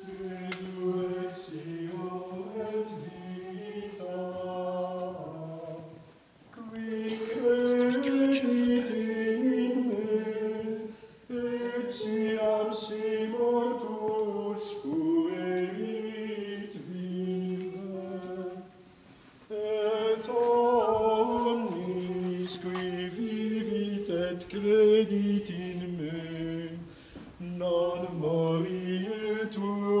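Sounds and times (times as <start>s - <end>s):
singers breathing: 26.8s - 27.4s.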